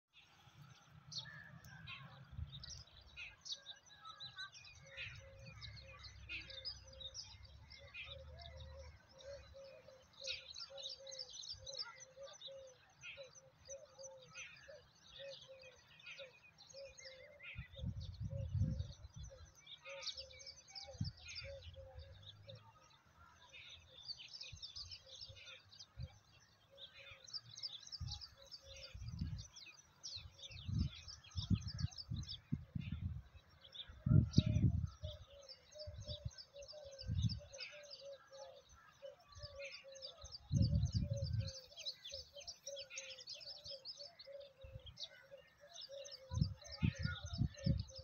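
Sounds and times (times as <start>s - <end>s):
birds chirping: 0.1s - 48.0s
wind buffeting microphone: 17.6s - 19.5s, 27.9s - 37.5s, 40.3s - 41.8s, 46.1s - 48.0s.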